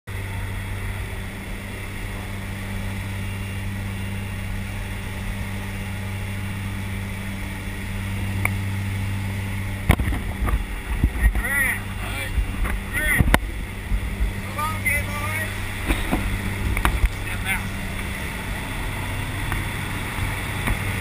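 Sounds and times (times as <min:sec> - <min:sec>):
plane engine drone in cabin: 0:00.1 - 0:21.0.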